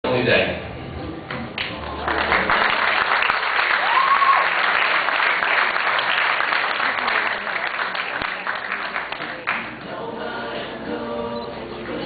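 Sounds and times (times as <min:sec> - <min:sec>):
audience applauding: 0:01.6 - 0:09.8.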